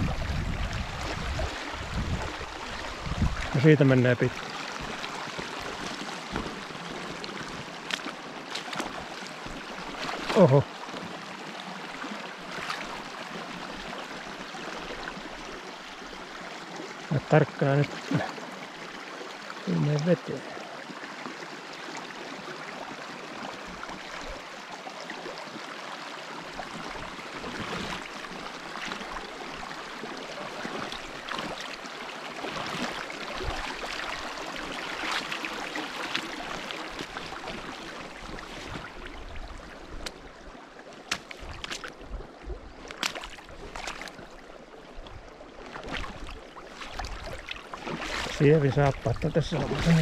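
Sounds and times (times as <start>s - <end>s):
splashing steps in water: 4.3s - 11.2s, 12.5s - 13.0s, 27.4s - 28.2s, 32.4s - 39.0s, 40.9s - 44.3s, 45.6s - 50.0s
brook rushing: 47.9s - 50.0s.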